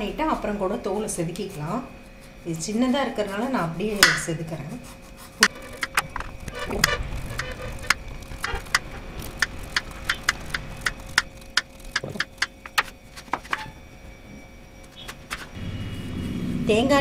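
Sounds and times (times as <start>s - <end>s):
knife paring fruit rind: 0.7s - 12.9s
sharp clicks and taps: 4.0s - 4.3s, 9.4s - 12.9s.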